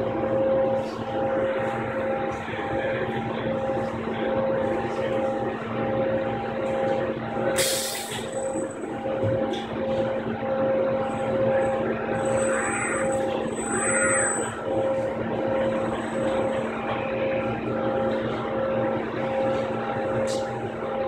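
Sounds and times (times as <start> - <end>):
steady machine hum: 0.0 - 21.0
robot arm servos whining: 12.2 - 14.6.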